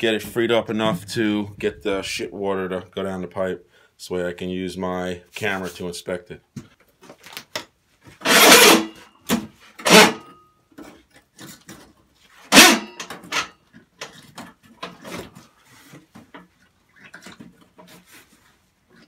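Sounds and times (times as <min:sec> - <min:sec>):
scraping and rubbing: 0:00.0 - 0:03.2, 0:08.1 - 0:09.0, 0:14.1 - 0:19.0.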